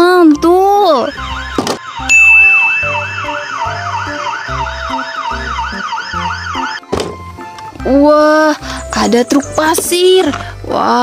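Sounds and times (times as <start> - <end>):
police siren yelping: 0.8 - 6.9.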